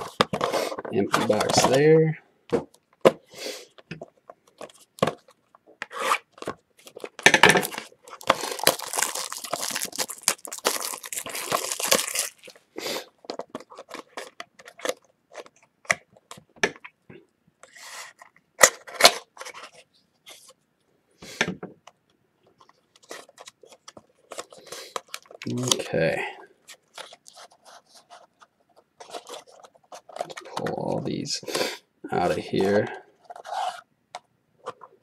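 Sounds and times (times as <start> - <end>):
packaging tearing and crinkling: 5.9 - 12.6.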